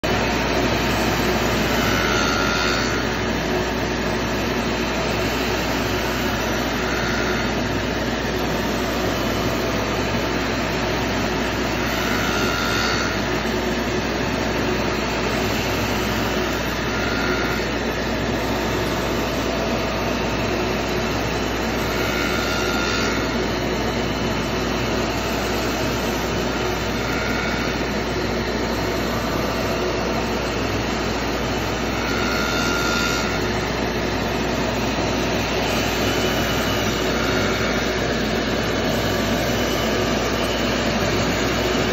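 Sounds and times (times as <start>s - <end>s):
saw blade cutting wood: 1.3s - 3.2s, 5.3s - 7.8s, 11.6s - 13.3s, 15.2s - 18.0s, 21.7s - 23.4s, 25.5s - 28.3s, 31.6s - 33.6s, 34.9s - 41.9s.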